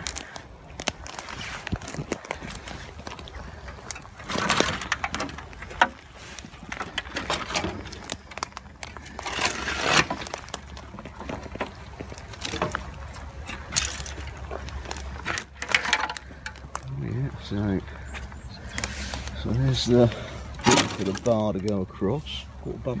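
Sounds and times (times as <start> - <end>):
footsteps on dry twigs and grass: 0.0 - 22.6.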